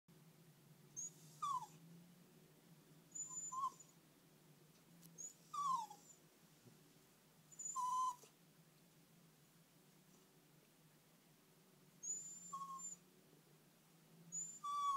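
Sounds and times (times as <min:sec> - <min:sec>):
puppy whimpering: 0:01.0 - 0:01.8, 0:03.1 - 0:04.0, 0:05.2 - 0:06.2, 0:07.5 - 0:08.3, 0:12.0 - 0:13.0, 0:14.3 - 0:14.9.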